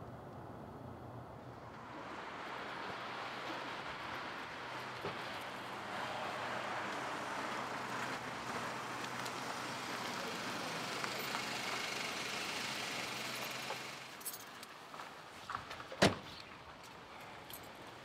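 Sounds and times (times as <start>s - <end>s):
car engine idling: 2.4s - 14.2s.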